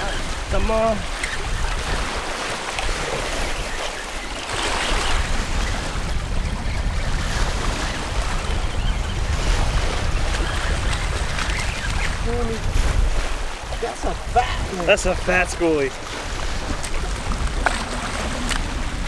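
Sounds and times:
small waves washing: 0.0 - 19.0
wind rumbling on microphone: 0.0 - 19.0.

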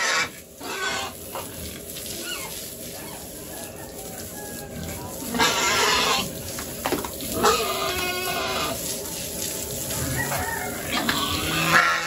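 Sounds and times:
pigs squealing and grunting: 0.0 - 3.4, 4.5 - 6.4, 7.3 - 8.9, 9.8 - 12.0.

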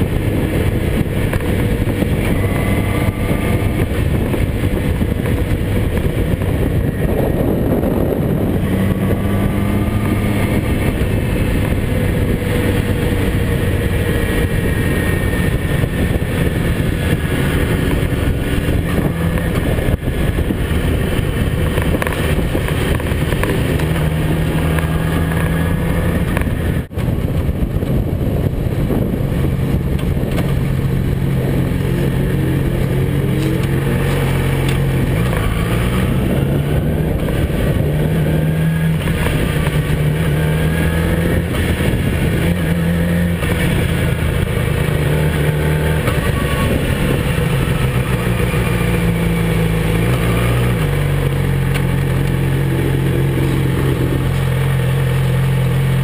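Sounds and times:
motorcycle engine revving: 0.0 - 56.0
wind and road noise: 0.0 - 56.0.

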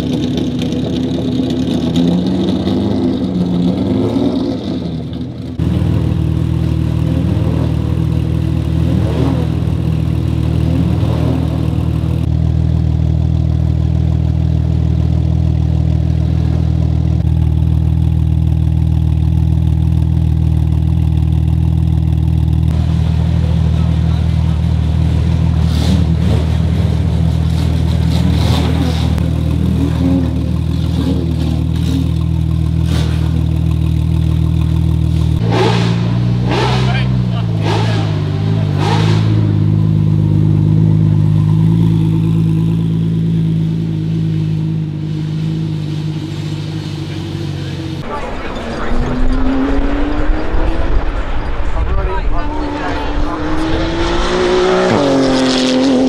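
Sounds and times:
car engine idling: 0.0 - 55.5.

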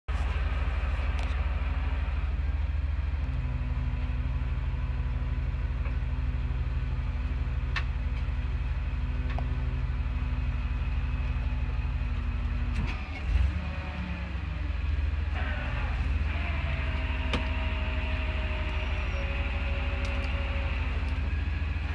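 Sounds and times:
truck engine idling: 0.1 - 21.9.

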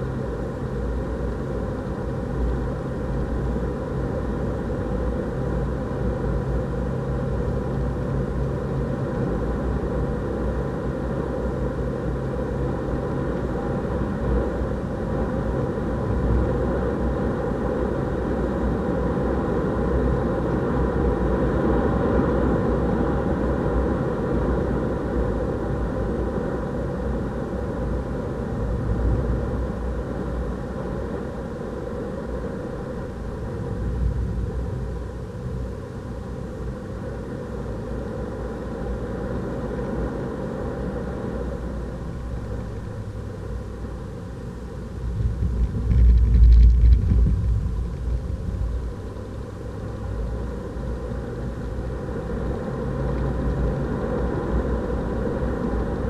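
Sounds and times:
tyres rumbling on track: 44.3 - 53.7
wind noise: 44.8 - 49.4.

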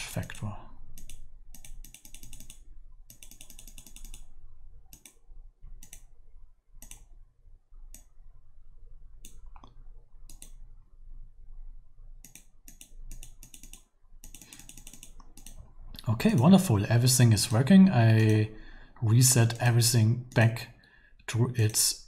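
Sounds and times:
faint low hum: 0.0 - 22.0
computer mouse clicking: 0.9 - 4.3, 4.9 - 6.2, 6.8 - 7.2, 7.9 - 8.2, 9.2 - 10.6, 12.2 - 15.6.

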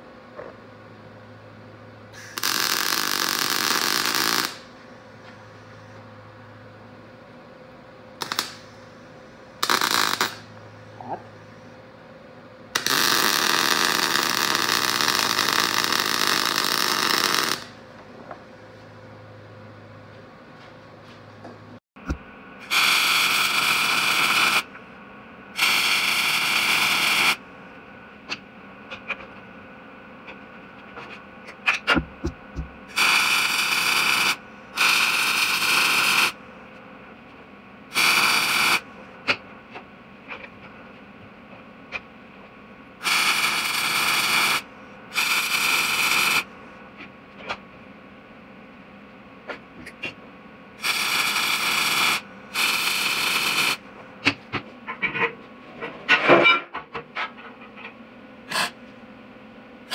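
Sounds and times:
welding arc crackling: 2.2 - 4.7, 8.2 - 8.7, 9.6 - 10.6, 12.8 - 17.8, 22.6 - 24.8, 25.6 - 27.4, 32.8 - 36.4, 37.9 - 38.9, 43.0 - 46.5, 50.8 - 53.8, 58.5 - 58.8.

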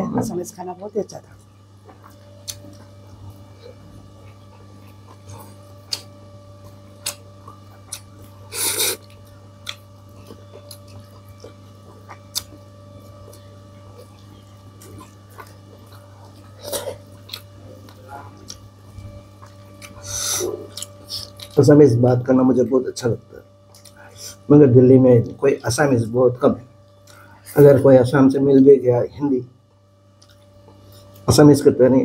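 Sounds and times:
electrical hum: 0.0 - 32.0
chewing: 1.4 - 21.6, 23.6 - 24.4, 30.1 - 31.3.

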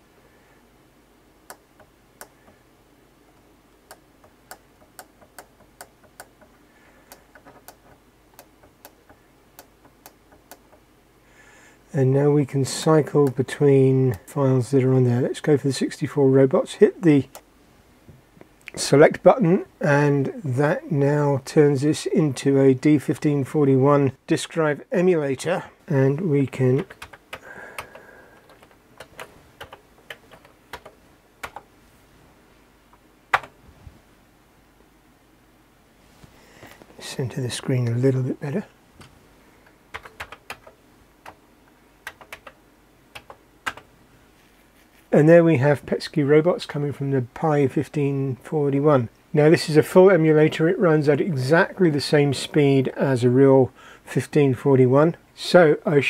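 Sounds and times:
computer keyboard keys clacking: 26.8 - 31.6, 39.9 - 41.4, 42.0 - 42.6, 43.2 - 43.9.

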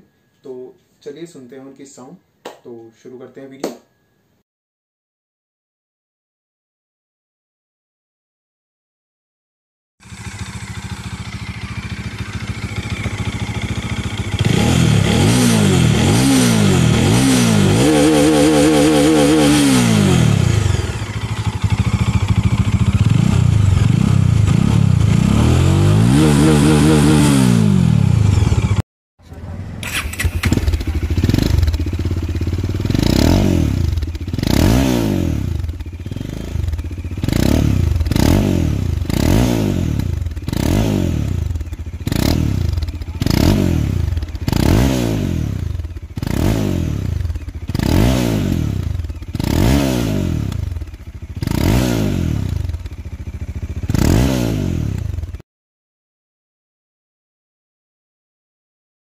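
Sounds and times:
motorcycle engine revving: 10.0 - 55.4.

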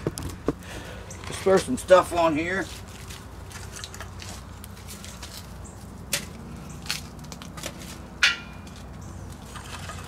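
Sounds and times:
fire crackling: 1.8 - 9.7.

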